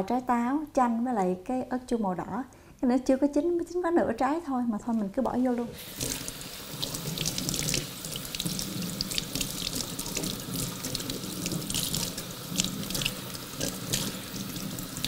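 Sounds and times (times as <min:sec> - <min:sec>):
faucet running into steel sink: 0:05.8 - 0:15.0.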